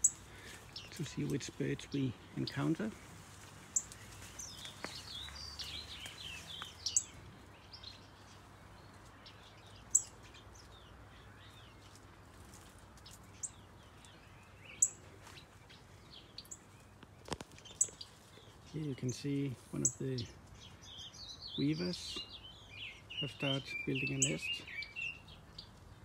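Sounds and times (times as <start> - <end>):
small birds chirping and twittering: 0.0 - 26.0.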